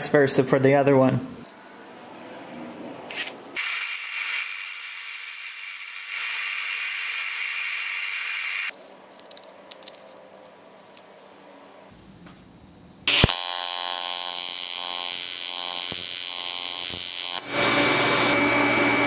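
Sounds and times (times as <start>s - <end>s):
high grinding hiss: 3.6s - 8.7s.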